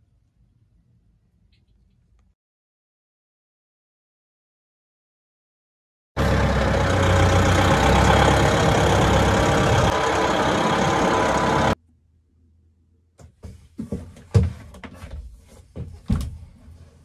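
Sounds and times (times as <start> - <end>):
tractor engine running: 6.2 - 11.8.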